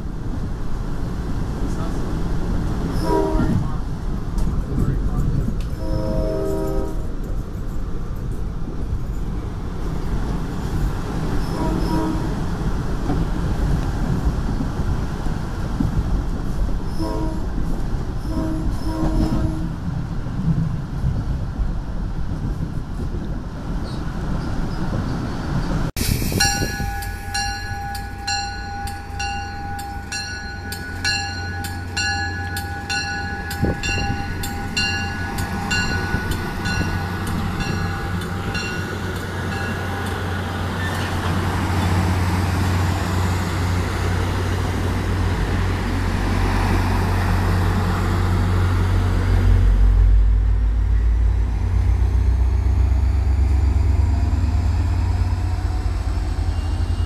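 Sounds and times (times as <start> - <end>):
diesel locomotive rumble: 0.0 - 57.0
train coaches rolling past: 0.0 - 57.0
crossing warning bell ringing: 26.3 - 41.4, 56.2 - 57.0.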